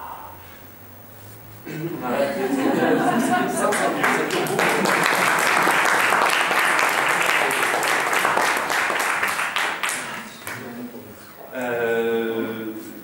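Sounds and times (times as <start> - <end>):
audience applauding: 2.6 - 10.7.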